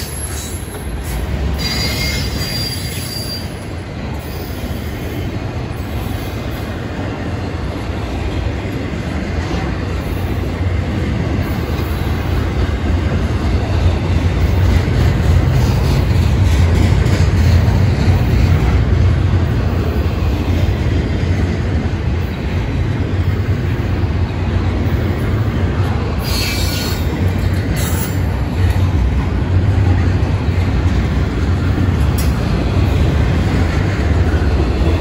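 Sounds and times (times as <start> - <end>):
high wheel squeal: 0.0 - 3.6, 26.2 - 27.2
steel wheels rumbling on rail: 0.0 - 35.0.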